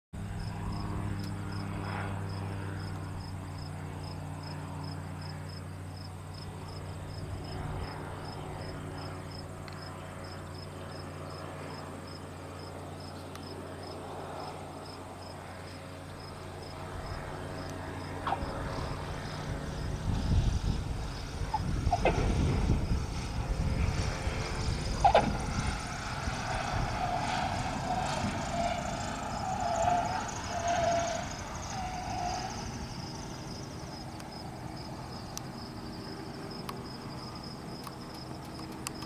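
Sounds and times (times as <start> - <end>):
airplane engine droning: 0.2 - 39.0
crickets chirping: 0.4 - 20.4, 26.3 - 39.0
tyres squeaking on runway: 26.5 - 33.5.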